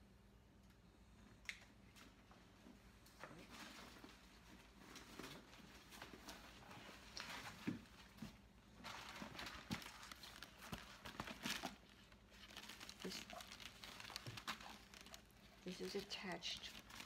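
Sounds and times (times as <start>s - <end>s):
bag rustling: 8.8s - 17.0s.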